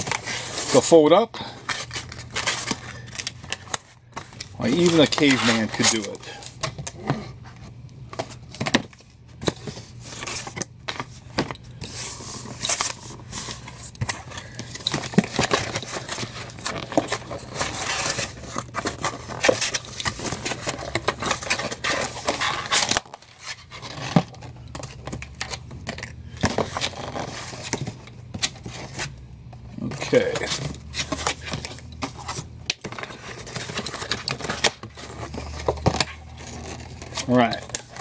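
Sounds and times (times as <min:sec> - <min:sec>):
cardboard box being folded: 0:01.7 - 0:06.4, 0:09.4 - 0:25.5, 0:29.8 - 0:38.0
stiff card scraping and creasing: 0:04.4 - 0:06.5, 0:32.9 - 0:38.0.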